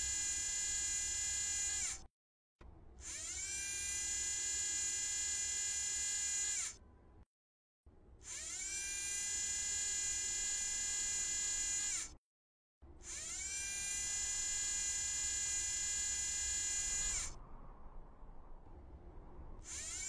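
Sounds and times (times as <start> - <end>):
electric motor whine: 0.0 - 2.0, 3.0 - 6.8, 8.2 - 12.1, 13.0 - 17.4, 19.6 - 20.0.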